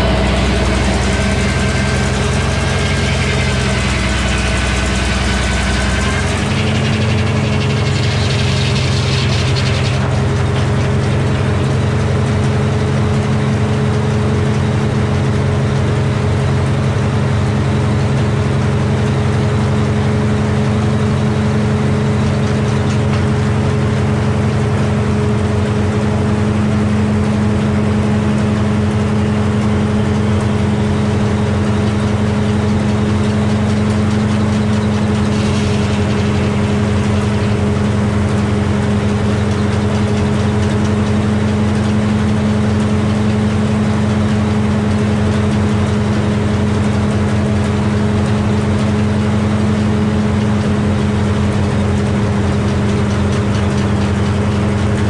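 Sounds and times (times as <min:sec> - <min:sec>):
sawmill running: 0:00.0 - 0:55.0.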